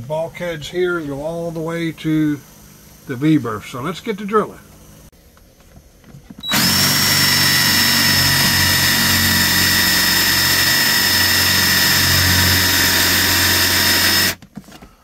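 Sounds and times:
cordless drill motor whine: 6.4 - 14.4
hole saw cutting wood: 6.5 - 14.4.

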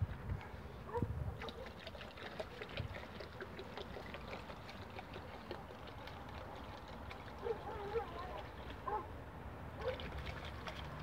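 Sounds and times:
water glugging from plastic bottle: 1.4 - 8.8, 9.8 - 11.0
small splashes and clicks: 1.4 - 9.0, 9.8 - 11.0.

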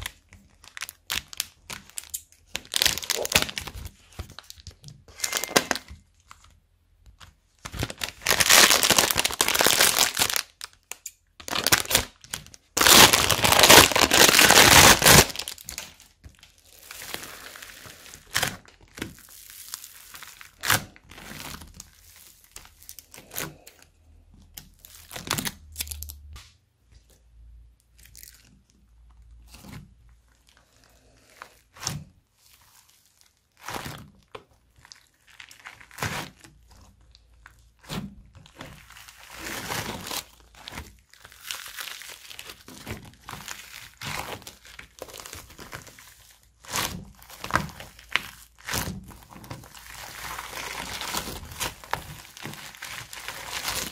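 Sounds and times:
foam beads crackling: 0.0 - 5.8, 7.8 - 23.8, 38.5 - 53.9
plastic bags crinkling: 0.0 - 6.5, 7.6 - 23.9, 32.4 - 53.9.

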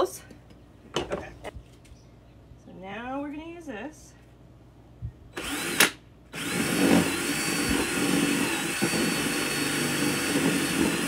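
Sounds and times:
cordless drill whining: 5.4 - 11.0
drill click: 5.4 - 11.0.

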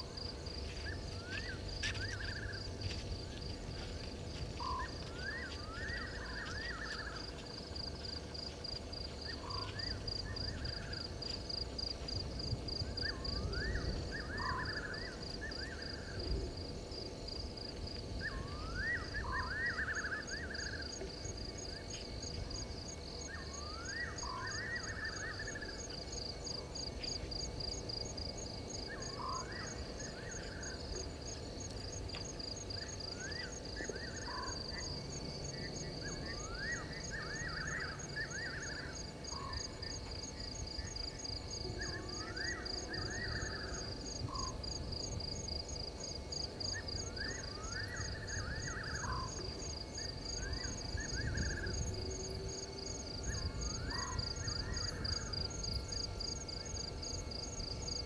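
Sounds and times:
insects trilling: 0.0 - 58.0
frogs calling: 18.2 - 22.0, 32.7 - 44.8, 46.6 - 58.0.

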